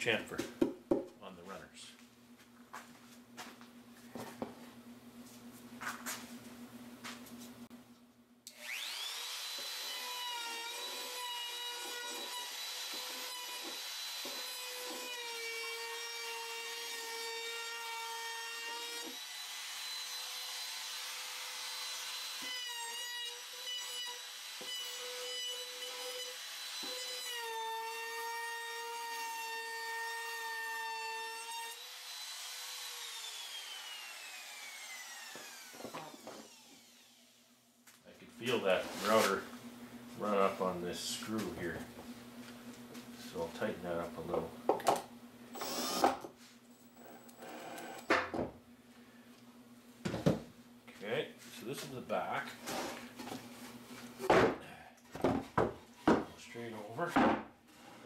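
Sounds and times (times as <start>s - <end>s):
router cutting wood: 8.5s - 37.4s, 45.6s - 46.3s.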